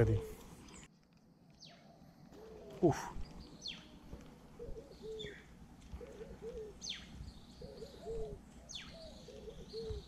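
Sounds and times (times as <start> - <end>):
dove cooing: 2.3 - 3.4, 4.1 - 10.0.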